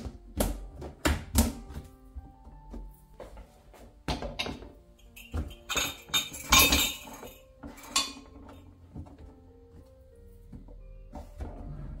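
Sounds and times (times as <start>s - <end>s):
ceramic mugs clinking: 4.1s - 8.7s.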